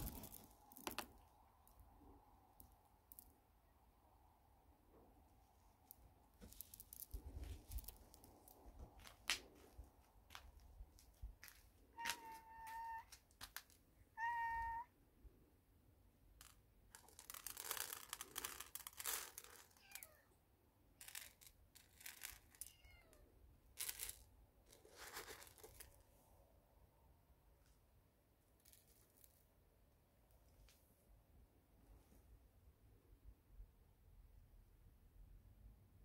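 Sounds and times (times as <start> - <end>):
kibble dropping onto concrete: 0.0 - 1.8, 2.6 - 3.4, 5.9 - 9.6, 16.4 - 20.1, 23.8 - 26.0
rustling: 0.0 - 3.4, 4.9 - 13.9, 16.4 - 20.2, 21.0 - 26.2
cat meowing: 11.9 - 13.1, 14.1 - 14.9, 22.6 - 23.3.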